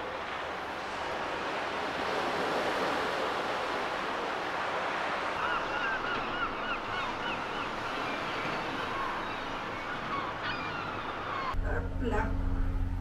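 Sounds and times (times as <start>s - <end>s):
gulls calling: 2.8s - 11.8s.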